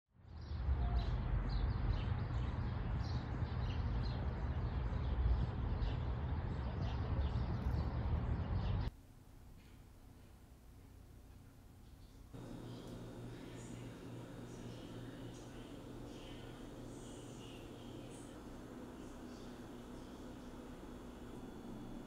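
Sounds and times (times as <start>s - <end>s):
small birds chirping: 11.9s - 22.0s
steady low rumble: 12.4s - 22.0s.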